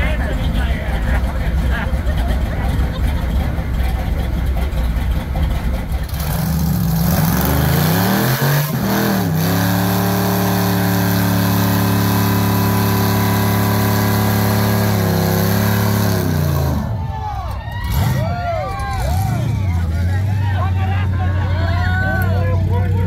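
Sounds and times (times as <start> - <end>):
car engine revving: 0.0 - 17.1.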